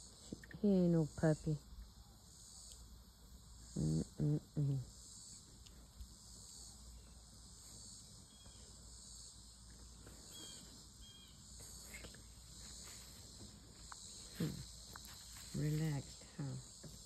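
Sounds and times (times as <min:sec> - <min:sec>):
insect chorus trilling: 0:00.0 - 0:17.0.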